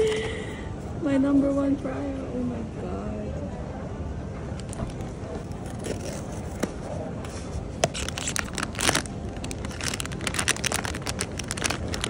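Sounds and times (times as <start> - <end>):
low background rumble: 0.0 - 12.0
foil bag crinkling and tearing: 7.8 - 12.0.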